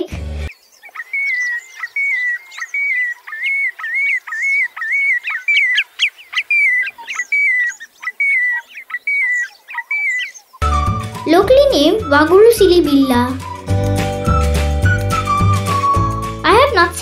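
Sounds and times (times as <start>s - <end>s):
sandpiper whistled calls: 0.8s - 16.4s
sharp upward-sweeping bird notes: 10.6s - 16.4s.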